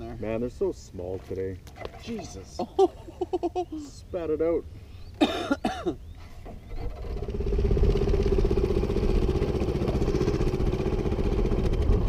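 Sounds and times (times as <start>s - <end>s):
outboard motor running: 6.4s - 12.0s.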